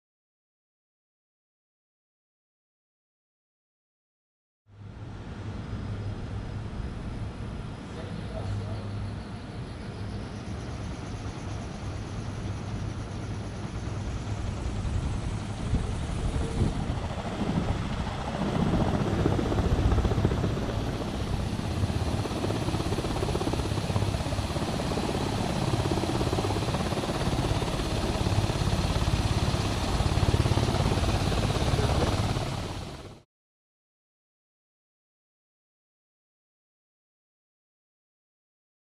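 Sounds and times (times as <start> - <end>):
propeller whooshing: 13.9 - 33.2.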